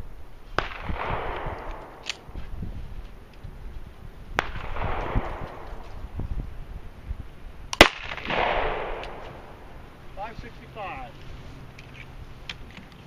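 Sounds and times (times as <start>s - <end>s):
pistol shots with echo: 0.6s - 2.3s, 4.4s - 5.6s, 7.8s - 9.5s.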